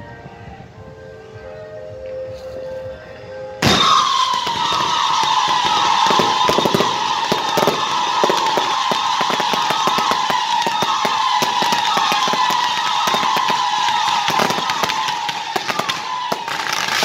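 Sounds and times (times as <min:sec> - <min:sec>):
fireworks high whistle: 0:02.1 - 0:17.0
fireworks ignition blast: 0:03.6 - 0:17.0
hissing roar of sparks: 0:03.6 - 0:17.0
sharp crackling pops: 0:03.6 - 0:17.0.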